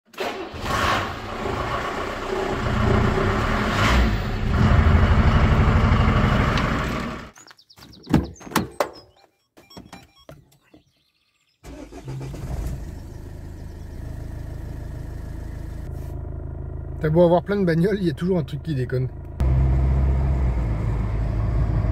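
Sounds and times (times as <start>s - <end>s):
car engine starting and idling: 0.1s - 7.4s, 11.6s - 21.9s
loud vehicle noise: 0.5s - 7.3s, 19.1s - 21.9s.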